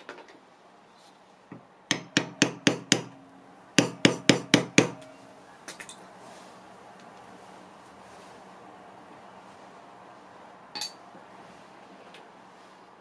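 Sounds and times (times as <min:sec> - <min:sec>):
hammer striking metal tool: 0:01.9 - 0:03.2, 0:03.8 - 0:05.2.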